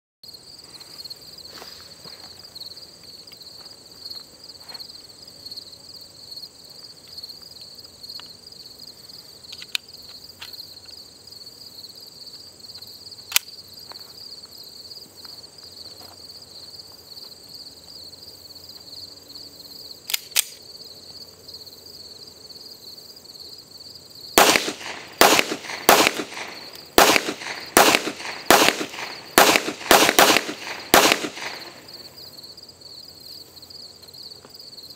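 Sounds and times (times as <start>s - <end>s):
insects buzzing: 0.3s - 34.9s
pistol shots: 24.4s - 31.8s.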